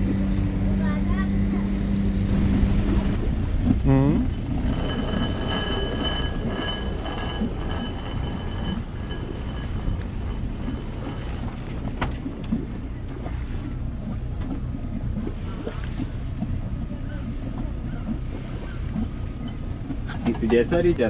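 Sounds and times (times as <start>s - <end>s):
high whine: 2.2s - 11.8s.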